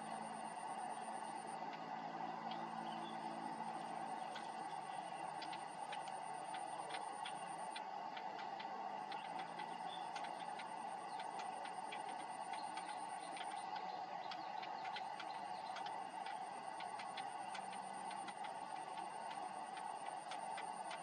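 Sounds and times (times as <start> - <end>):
thin high whine: 0.0 - 21.0
faint clicks: 2.4 - 21.0.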